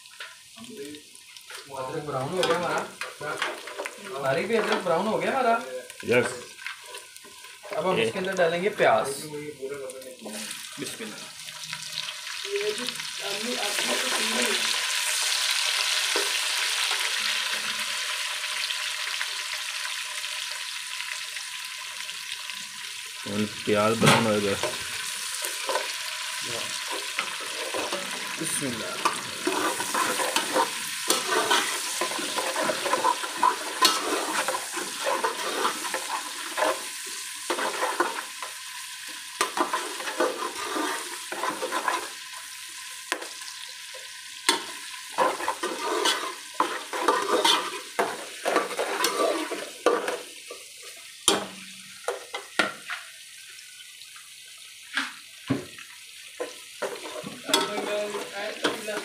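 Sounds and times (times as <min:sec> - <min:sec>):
onions sizzling in oil: 0:00.0 - 0:59.0
metal spatula scraping a pot: 0:26.7 - 0:38.6, 0:39.3 - 0:42.2, 0:44.4 - 0:51.4, 0:56.8 - 0:59.0.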